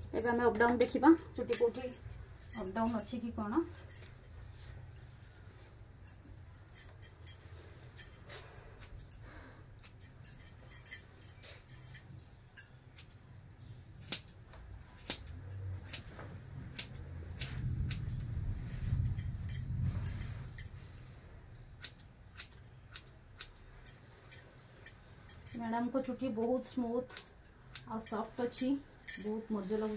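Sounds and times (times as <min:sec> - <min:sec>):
scissors snipping hair: 0:00.1 - 0:03.3, 0:14.0 - 0:18.3, 0:21.8 - 0:23.9, 0:26.3 - 0:29.4.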